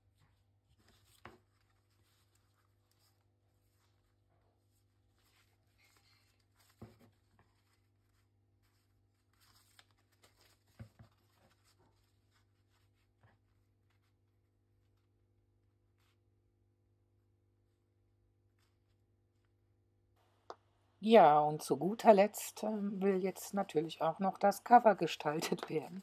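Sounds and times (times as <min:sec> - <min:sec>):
paper rustling and sliding: 0:04.9 - 0:13.2.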